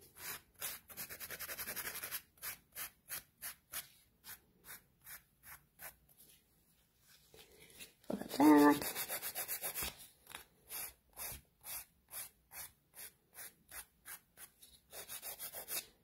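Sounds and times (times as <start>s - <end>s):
nail file rasping: 10.7s - 15.9s.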